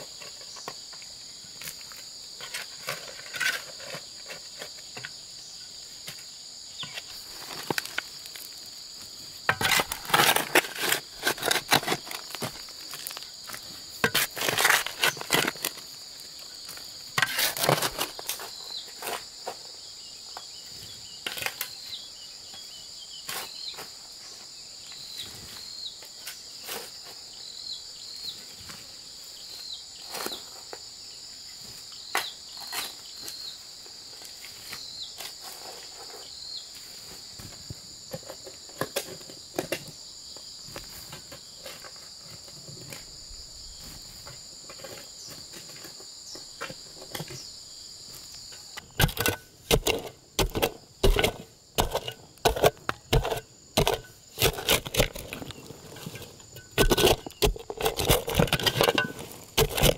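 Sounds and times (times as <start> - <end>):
insect chorus: 0.0 - 59.9
digging tool striking stony soil: 9.4 - 15.8, 48.8 - 59.9.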